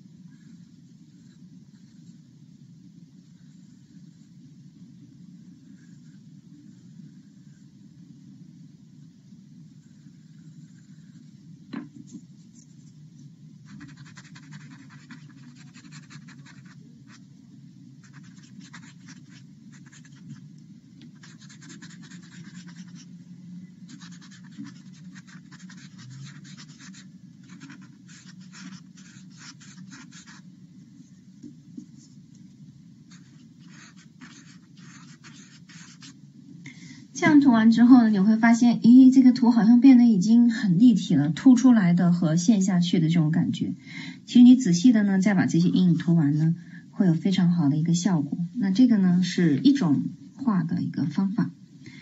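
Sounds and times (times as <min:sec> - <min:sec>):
steady low hum: 0:00.0 - 0:52.0
pencil scratching on paper: 0:09.8 - 0:11.3, 0:13.6 - 0:17.2, 0:18.0 - 0:20.4, 0:21.1 - 0:23.2, 0:23.9 - 0:30.4, 0:33.1 - 0:36.2.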